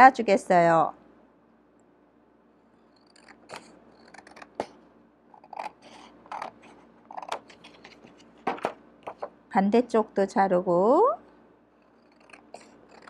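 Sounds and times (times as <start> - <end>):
scissors snipping paper: 3.1 - 4.7, 5.4 - 8.1, 12.0 - 13.0.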